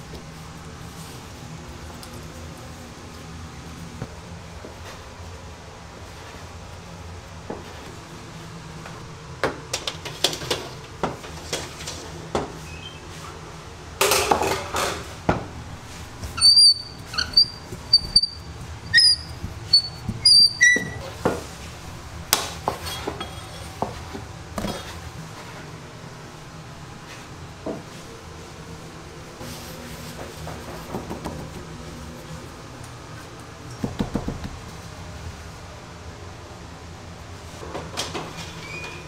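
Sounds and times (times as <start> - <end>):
short high squeaks: 16.4 - 21.1.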